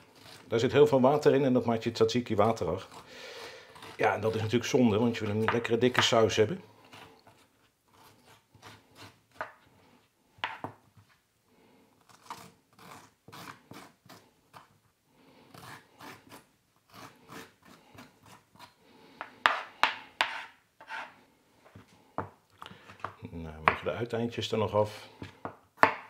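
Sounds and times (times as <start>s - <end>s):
teaspoon scraping cucumber: 2.2s - 9.2s.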